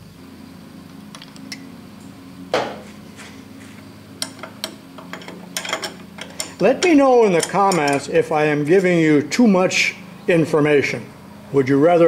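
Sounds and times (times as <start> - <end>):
steady low hum: 0.0 - 12.0
metallic clinks of steel parts: 4.2 - 8.1.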